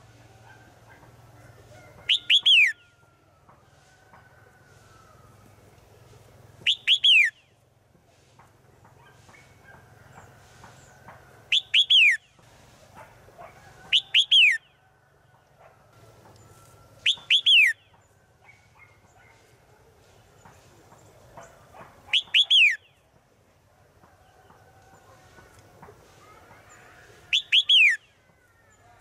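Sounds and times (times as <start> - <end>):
bird whistled call: 2.0 - 2.9, 6.6 - 7.5, 11.5 - 12.2, 13.9 - 14.7, 17.0 - 17.9, 22.1 - 22.9, 27.3 - 28.1
faint bird chirps: 26.2 - 29.0.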